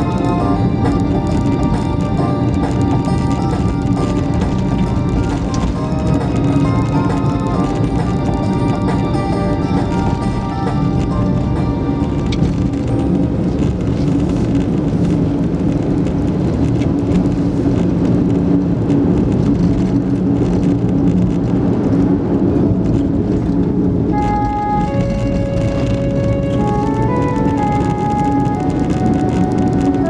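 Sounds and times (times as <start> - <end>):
music with long held notes: 0.0 - 15.4, 22.6 - 30.0
car engine and tyre noise: 0.0 - 30.0.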